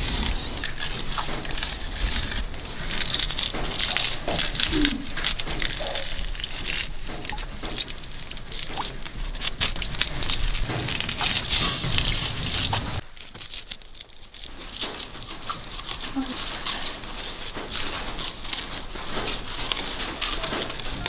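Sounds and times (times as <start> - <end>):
crisp crackles of biting root: 0.0 - 21.0
root fibres tearing: 0.0 - 21.0.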